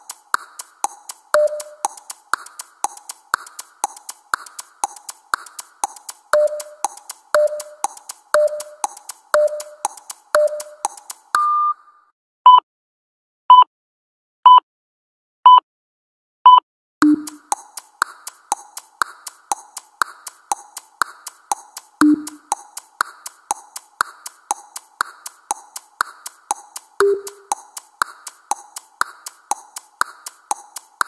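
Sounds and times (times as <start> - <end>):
electronic tick-tock: 0.0 - 11.8, 16.5 - 31.0
electronic timer beeps: 1.3 - 2.7, 6.3 - 11.8, 16.5 - 17.6, 22.0 - 22.6, 27.0 - 27.6.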